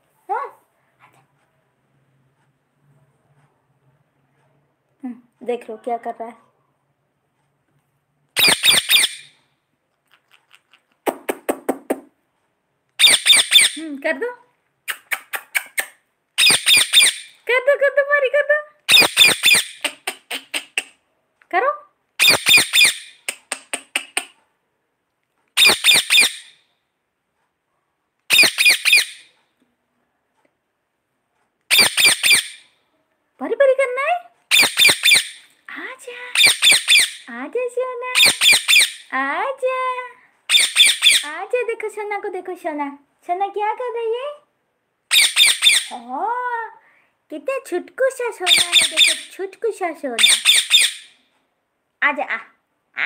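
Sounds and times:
parakeet squawking: 0:08.4 - 0:09.4, 0:13.0 - 0:13.9, 0:15.0 - 0:17.4, 0:18.9 - 0:21.0, 0:22.2 - 0:24.3, 0:25.6 - 0:26.6, 0:28.3 - 0:29.3, 0:31.7 - 0:32.7, 0:34.5 - 0:35.5, 0:36.3 - 0:37.3, 0:38.2 - 0:39.1, 0:40.5 - 0:41.3, 0:45.1 - 0:46.0, 0:48.4 - 0:49.4, 0:50.2 - 0:51.2
parrot screeching calls: 0:08.4 - 0:09.4, 0:13.0 - 0:13.8, 0:16.4 - 0:17.4, 0:18.9 - 0:20.8, 0:22.2 - 0:23.2, 0:25.6 - 0:26.6, 0:28.3 - 0:29.3, 0:31.7 - 0:32.7, 0:34.5 - 0:35.5, 0:36.3 - 0:37.3, 0:38.2 - 0:39.1, 0:40.5 - 0:41.3, 0:45.1 - 0:45.9, 0:48.5 - 0:49.3, 0:50.2 - 0:51.2.

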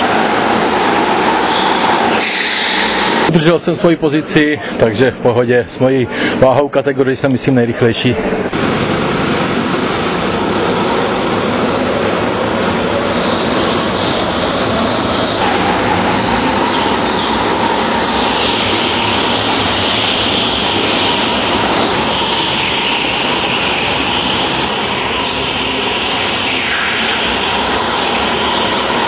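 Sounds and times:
high engine whine: 0:00.0 - 0:03.8, 0:08.1 - 0:29.0
go-kart engines racing: 0:11.3 - 0:29.0.

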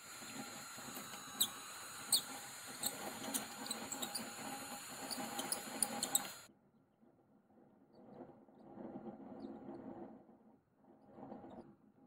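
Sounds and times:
hand drill boring into wood: 0:00.0 - 0:06.5
sharp high squeaks: 0:00.2 - 0:06.5.

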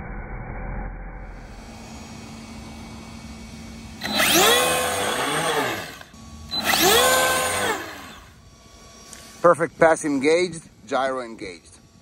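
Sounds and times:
electric motor whining: 0:01.3 - 0:10.6.

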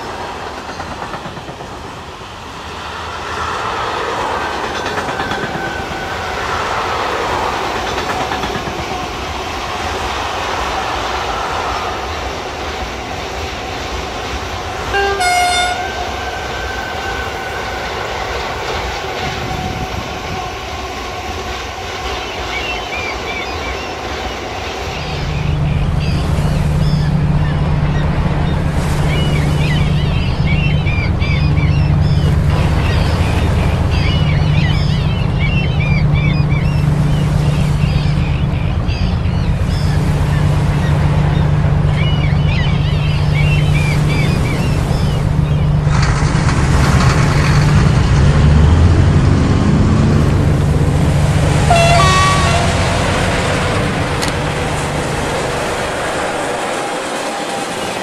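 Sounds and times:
surf washing: 0:00.0 - 0:58.0
two-note horn toot: 0:14.9 - 0:16.1, 0:51.6 - 0:53.0
low rumble of vehicle engines: 0:25.0 - 0:56.9
low hum: 0:25.2 - 0:56.3.

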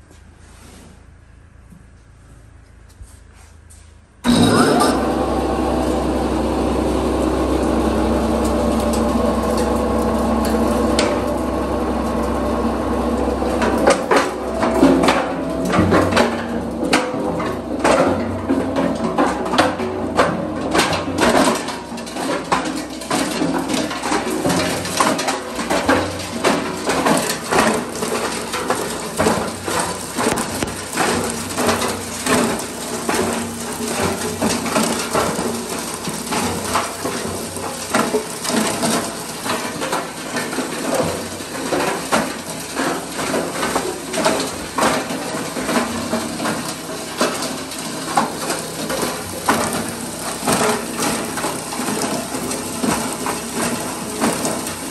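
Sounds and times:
machine hum: 0:04.2 - 0:54.9
plastic cracking and knocking: 0:26.4 - 0:33.4.

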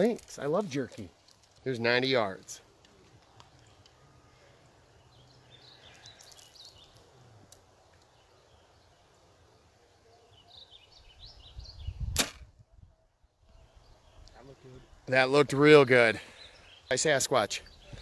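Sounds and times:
birds chirping: 0:00.0 - 0:18.0
bow shot snap: 0:12.1 - 0:12.5.

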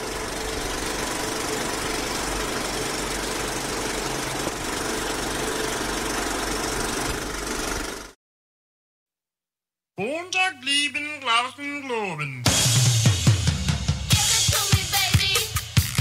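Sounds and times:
machine whirring and rattling: 0:00.0 - 0:08.2.

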